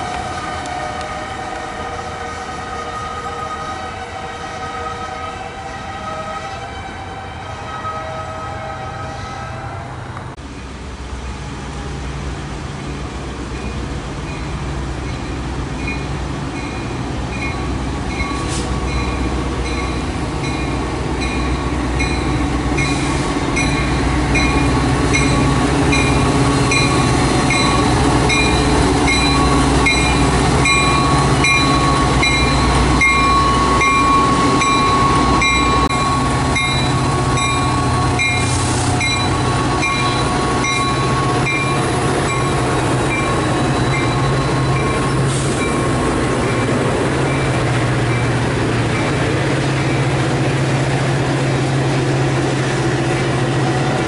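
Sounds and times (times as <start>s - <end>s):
diesel locomotive engine drone: 0.0s - 54.0s
train wheel and rail noise: 0.0s - 54.0s
train bell ringing: 13.5s - 49.2s.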